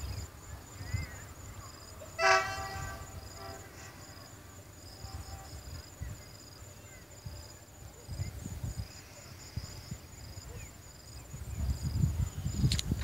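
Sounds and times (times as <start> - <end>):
insects chirping: 0.0 - 13.0
distant locomotive horn: 2.0 - 5.8.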